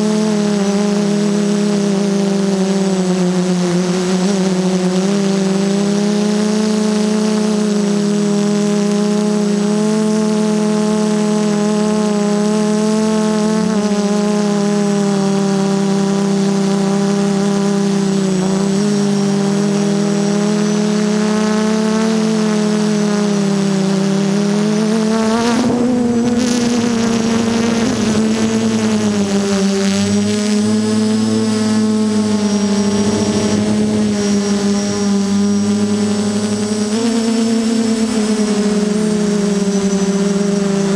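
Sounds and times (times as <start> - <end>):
drone motors buzzing: 0.0 - 40.9
rush of air noise: 25.2 - 36.8.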